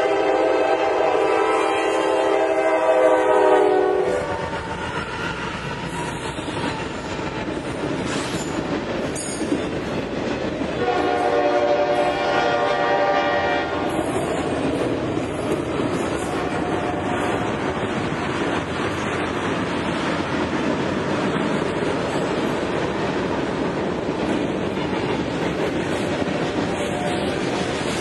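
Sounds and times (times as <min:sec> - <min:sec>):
train horn chord: 0:00.0 - 0:04.5, 0:10.8 - 0:13.9, 0:16.3 - 0:17.4
train cars rumbling and clacking: 0:00.0 - 0:28.0.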